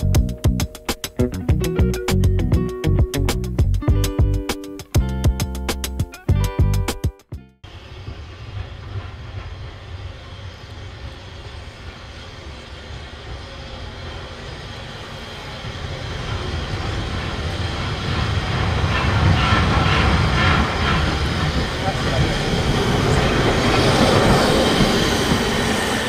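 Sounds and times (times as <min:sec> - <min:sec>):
steam locomotive rumble: 0:07.6 - 0:26.0
locomotive rattling and hissing: 0:07.7 - 0:26.0.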